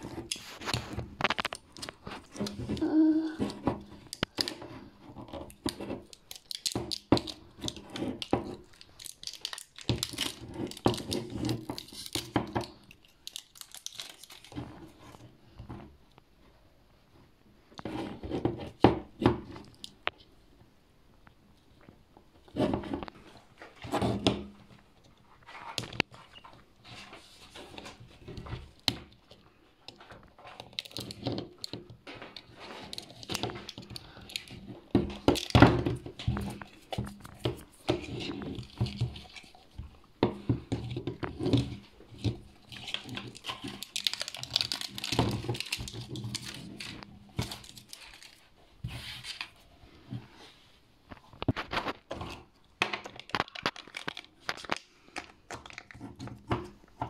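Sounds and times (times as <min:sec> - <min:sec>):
plastic crinkling and tearing: 0:00.0 - 0:15.3, 0:25.0 - 0:39.9, 0:40.6 - 0:49.6, 0:51.1 - 0:56.5.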